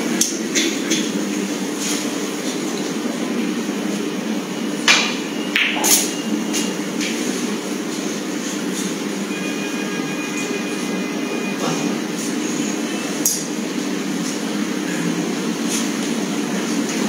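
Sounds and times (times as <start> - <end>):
cue striking ball: 4.9 - 6.1.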